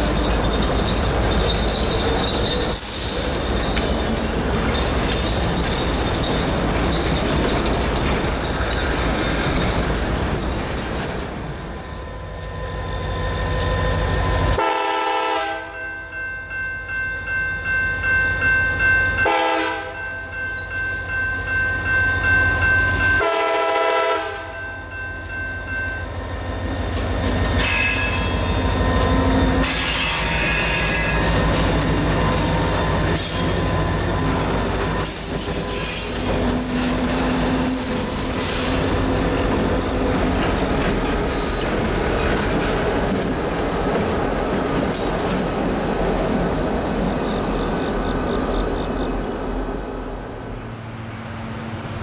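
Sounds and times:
high wheel squeals: 0.0 - 10.9, 11.7 - 14.6, 26.5 - 39.0, 41.1 - 42.0, 46.8 - 49.2
train wheels clattering over rails: 0.0 - 11.4, 26.8 - 48.2
train horn: 14.5 - 15.9, 19.2 - 20.0, 23.2 - 24.6, 29.5 - 31.3
diesel locomotive engine throbbing: 21.0 - 47.0.

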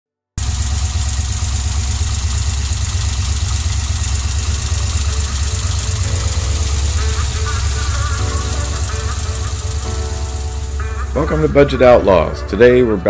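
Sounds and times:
car engine idling with clatter: 0.4 - 12.6.

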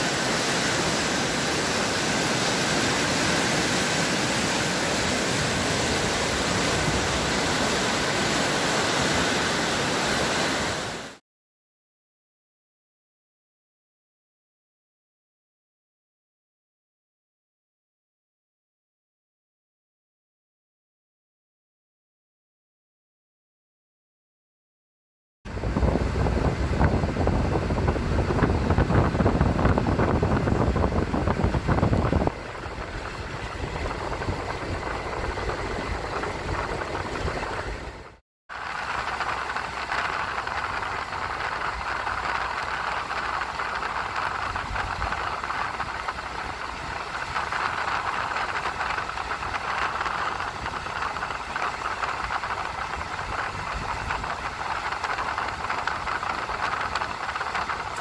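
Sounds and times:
moving vehicle travel noise: 0.0 - 11.2, 25.5 - 58.0.

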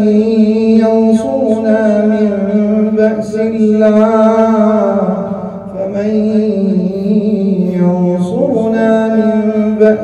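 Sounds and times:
man chanting melodically: 0.0 - 10.0.

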